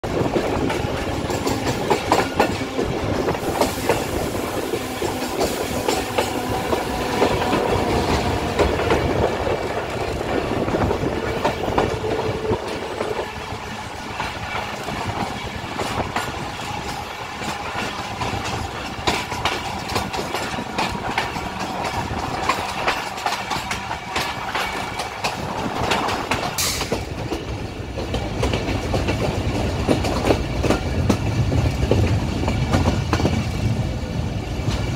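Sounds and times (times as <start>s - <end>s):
train rumbling: 0.0s - 34.9s
wheels clattering over rail joints: 4.7s - 33.6s.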